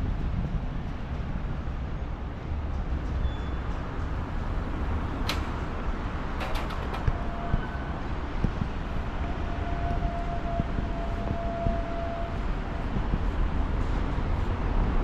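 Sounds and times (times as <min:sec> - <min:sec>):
traffic rumble: 0:00.0 - 0:15.0.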